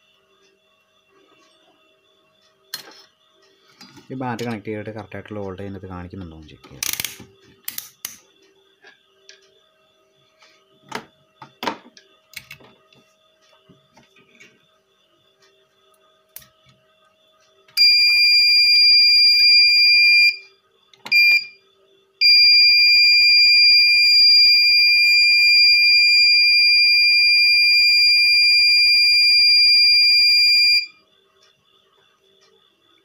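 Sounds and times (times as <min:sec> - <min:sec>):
high-pitched buzzer beep: 0:17.8 - 0:20.4, 0:21.1 - 0:21.6, 0:22.2 - 0:31.0.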